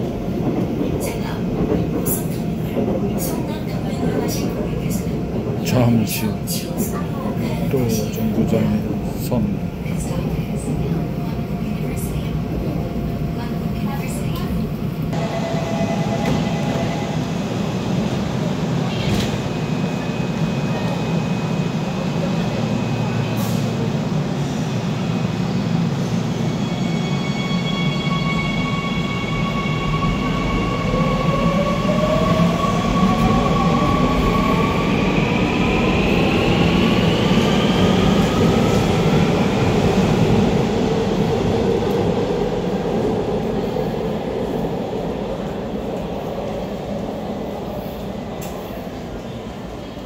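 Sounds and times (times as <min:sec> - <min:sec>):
train hum and rumble: 0:00.0 - 0:50.0.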